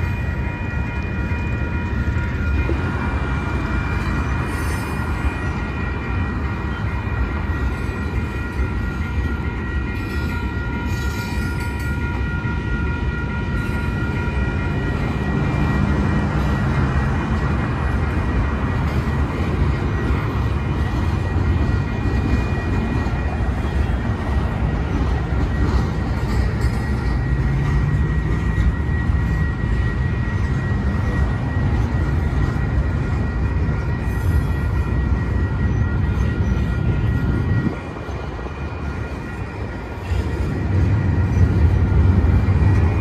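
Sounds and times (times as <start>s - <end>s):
faint high ringing tones: 0.0s - 43.0s
train wheels rumbling on rails: 0.0s - 43.0s.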